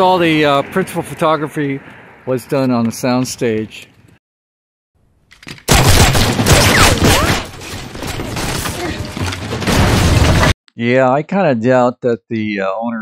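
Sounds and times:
rapid gunfire: 0:05.7 - 0:07.4.

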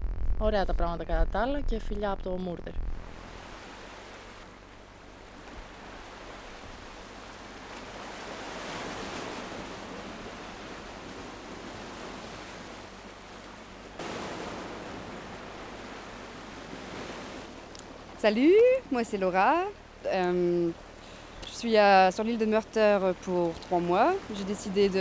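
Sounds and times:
waves washing over rocks: 0:13.9 - 0:18.8.

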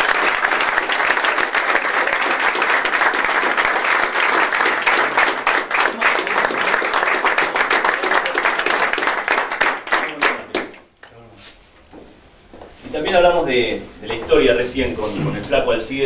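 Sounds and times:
group applauding: 0:00.0 - 0:11.2.

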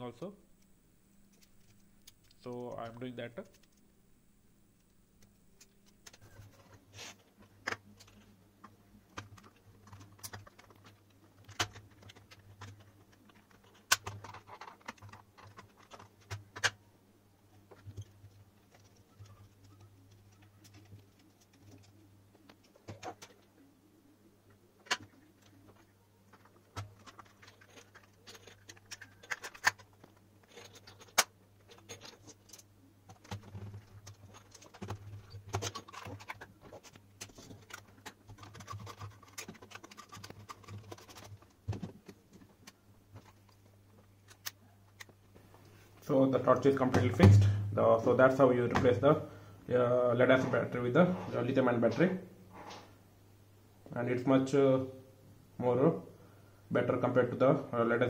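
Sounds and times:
steady low hum: 0:00.0 - 0:57.2.

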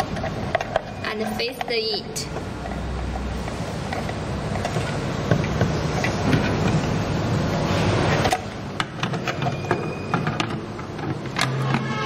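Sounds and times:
clicks of handling metal and plastic: 0:00.0 - 0:02.8, 0:08.1 - 0:12.0.

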